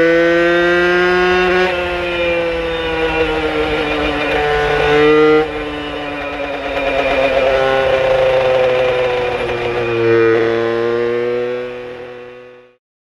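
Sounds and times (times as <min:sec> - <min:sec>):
moped engine revving: 0:00.0 - 0:12.8.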